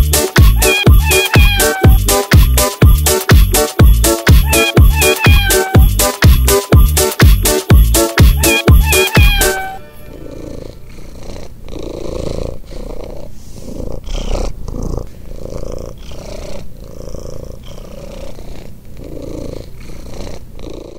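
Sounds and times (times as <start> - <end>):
cat purring: 0.4 - 2.4, 10.0 - 20.9.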